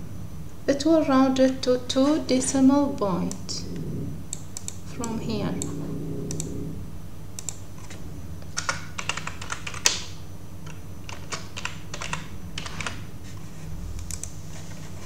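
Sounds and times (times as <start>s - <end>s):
keyboard typing: 4.3s - 6.8s, 7.4s - 13.1s.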